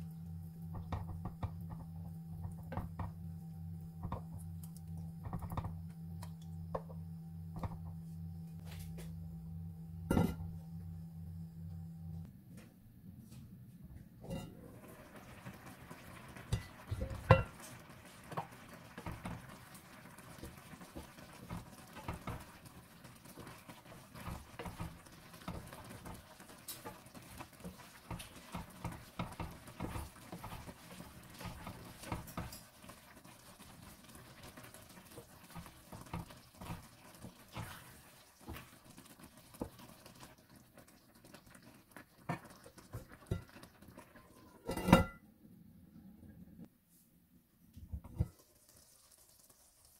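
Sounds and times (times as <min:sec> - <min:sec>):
wooden spoon scraping a pan: 0:20.3 - 0:38.8.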